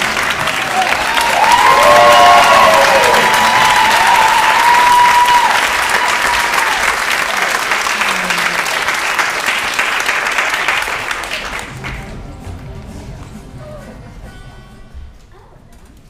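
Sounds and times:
audience applauding: 0.0s - 12.2s.

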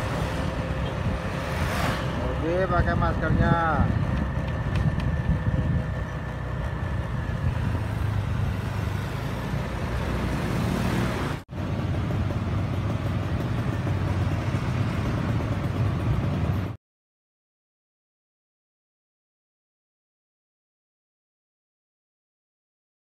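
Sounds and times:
rushing air: 0.0s - 4.4s
motorbike engine hum: 0.0s - 16.8s.

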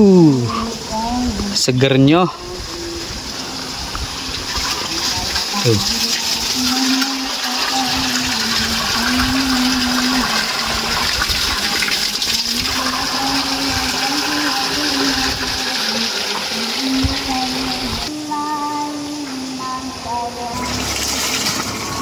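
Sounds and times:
water pouring into basin: 3.0s - 18.1s, 20.6s - 22.0s.

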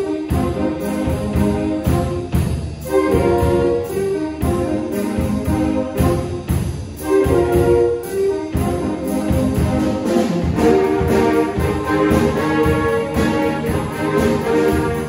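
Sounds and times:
drum kit beat: 0.0s - 15.0s
saxophones and trombones: 0.0s - 15.0s
tuba: 0.0s - 15.0s.

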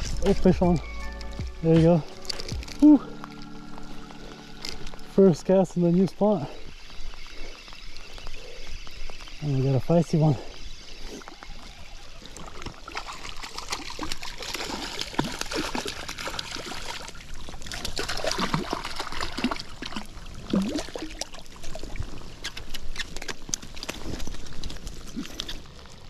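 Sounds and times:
fish splashing in water: 11.4s - 24.7s.

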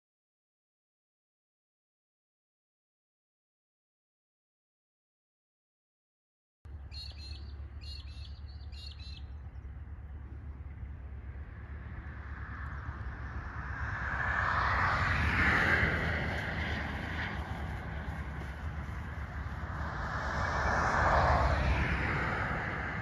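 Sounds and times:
bird chirps: 6.7s - 9.8s
steady low rumble: 6.7s - 23.0s
passing vehicle hiss: 11.8s - 23.0s.

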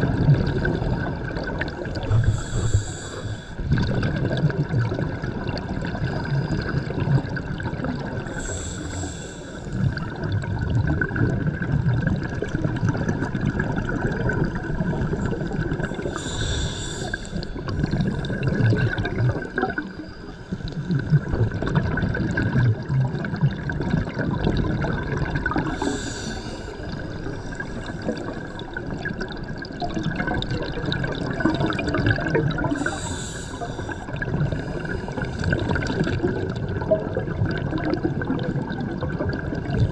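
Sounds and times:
bubbling of exhaled air: 0.0s - 39.9s
regulator inhalation hiss: 2.1s - 3.6s, 8.3s - 9.8s, 16.0s - 17.7s, 25.7s - 28.4s, 32.7s - 35.6s.

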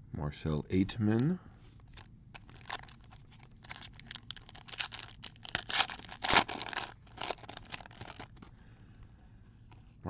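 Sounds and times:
foil wrapper tearing and crinkling: 2.4s - 8.5s.

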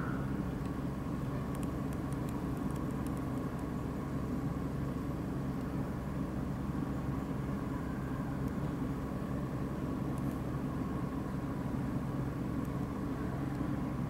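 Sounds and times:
low mechanical hum: 0.0s - 14.0s
faint light ticks: 1.5s - 3.7s.

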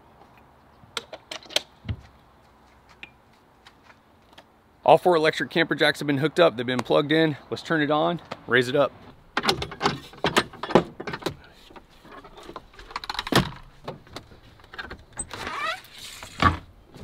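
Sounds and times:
footsteps on wooden steps: 1.8s - 4.0s
door squeaking open: 15.1s - 15.9s.

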